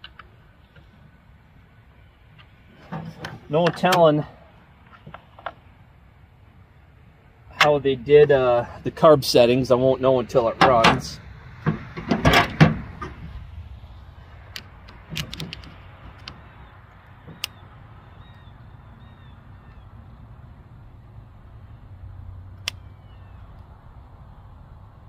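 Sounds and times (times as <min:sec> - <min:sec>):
tools thumping on tailgate: 0:10.6 - 0:13.2
faint bird chirps: 0:16.5 - 0:20.2, 0:22.7 - 0:23.6.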